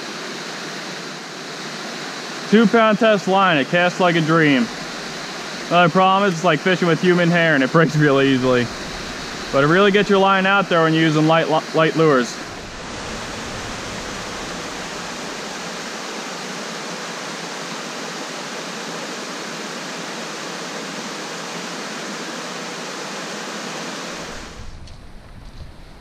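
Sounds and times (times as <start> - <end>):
waterfall rushing into pool: 0.0 - 24.7.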